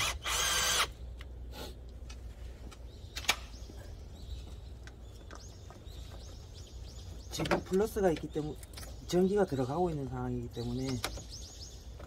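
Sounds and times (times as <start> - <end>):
cordless drill-driver whining: 0.0 - 0.9.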